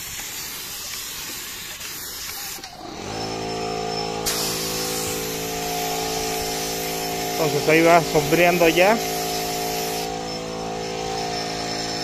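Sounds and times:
spray gun hissing: 0.0s - 12.0s
air compressor motor humming: 2.6s - 12.0s.

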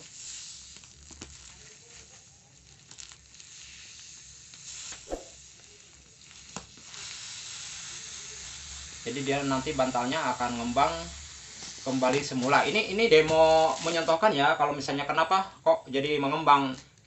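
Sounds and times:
air hissing through hole: 4.7s - 5.5s, 6.8s - 14.0s.

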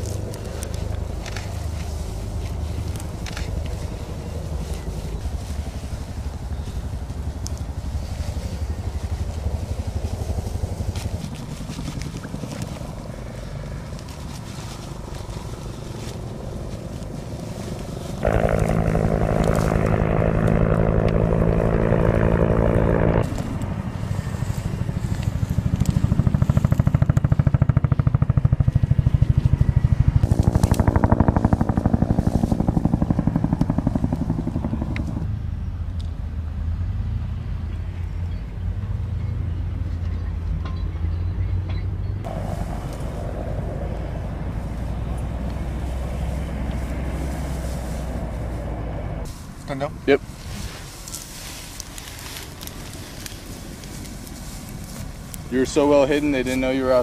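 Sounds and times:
faint crackles and clicks: 0.0s - 27.4s, 49.2s - 57.0s
vehicle engine running: 0.0s - 57.0s.

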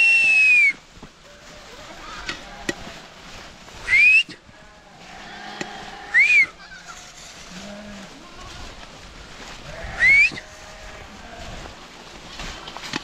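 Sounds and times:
loud herding whistles: 0.0s - 0.8s, 3.9s - 4.4s, 6.1s - 6.5s, 10.0s - 10.4s.

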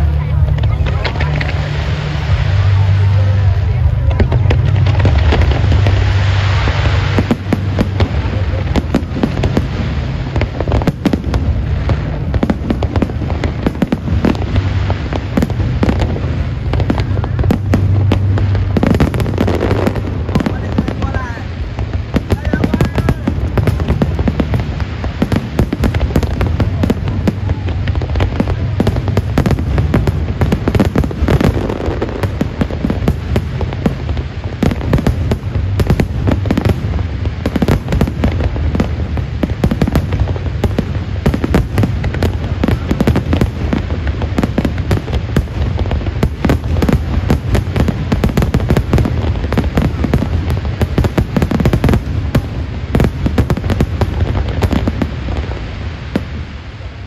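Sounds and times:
fireworks bangs and crackles: 0.0s - 57.0s
low rumble: 0.0s - 57.0s.

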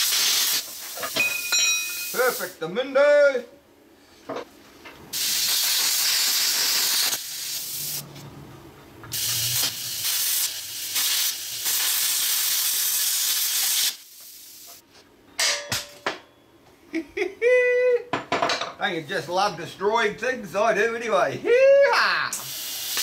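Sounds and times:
plasma cutter hissing: 0.0s - 1.2s, 2.1s - 2.6s, 5.1s - 8.0s, 9.1s - 14.8s, 22.3s - 23.0s.

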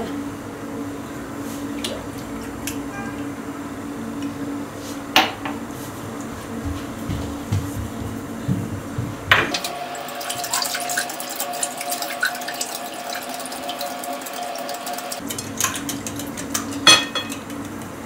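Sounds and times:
liquid sloshing: 9.6s - 17.6s
whisk clinking against glass bowl: 14.3s - 17.7s.

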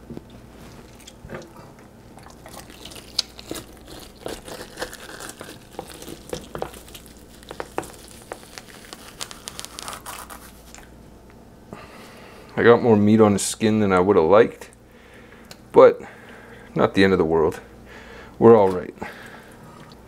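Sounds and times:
fish skin tearing crackles: 2.3s - 10.9s.

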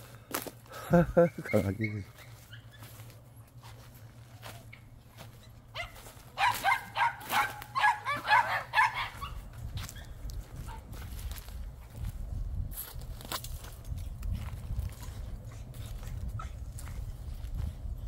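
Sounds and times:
dog barking: 5.7s - 9.4s.

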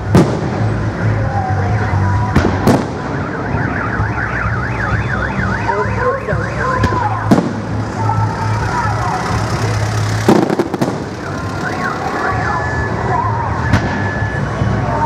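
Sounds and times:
fireworks bursting with bangs: 0.0s - 1.0s, 2.3s - 3.5s, 6.8s - 12.8s
warbling siren-like tone: 10.4s - 13.7s.

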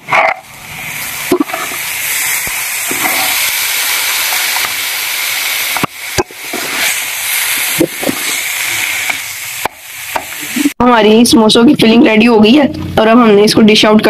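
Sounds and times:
filling sizzling in a pan: 0.0s - 10.8s.

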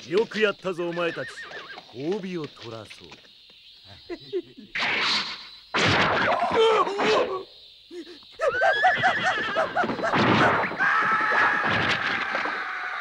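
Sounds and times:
man's wavering cries: 6.4s - 10.0s.

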